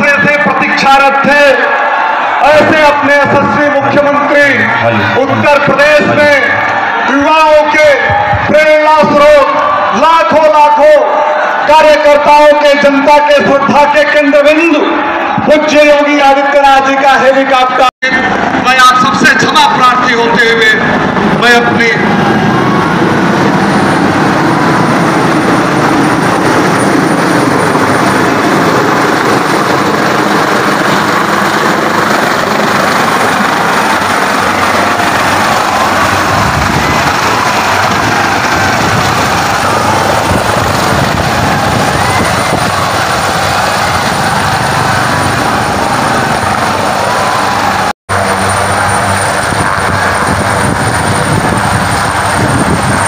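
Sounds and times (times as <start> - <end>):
helicopter flying overhead: 0.0 - 53.0.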